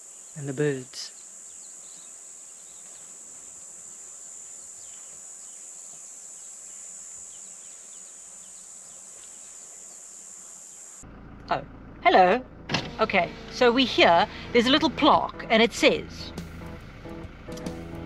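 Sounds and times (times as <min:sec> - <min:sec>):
faint bird chirps: 0:00.0 - 0:11.0
insects trilling: 0:00.0 - 0:11.1.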